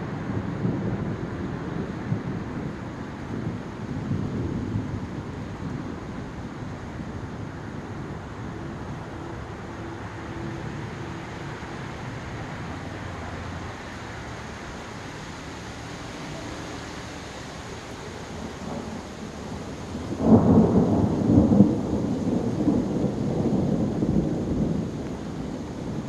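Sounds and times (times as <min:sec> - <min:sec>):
rain hissing: 0:02.6 - 0:26.0
distant thunder rumbling: 0:18.2 - 0:26.0.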